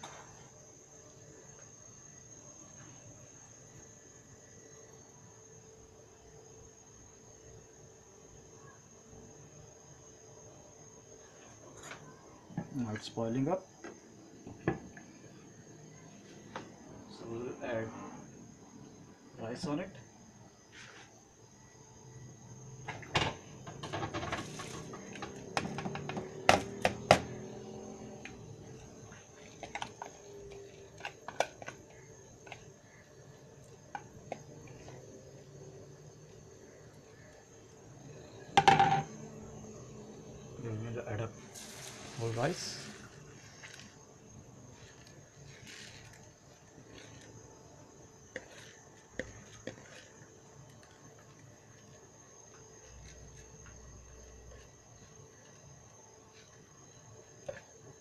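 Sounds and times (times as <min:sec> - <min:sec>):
rice rustling into a pot: 0:23.8 - 0:25.7, 0:41.4 - 0:44.0, 0:44.6 - 0:47.4, 0:48.3 - 0:52.0
bowl knocking against metal pot: 0:38.6 - 0:39.1
rice pouring into a pot: 0:41.5 - 0:43.9.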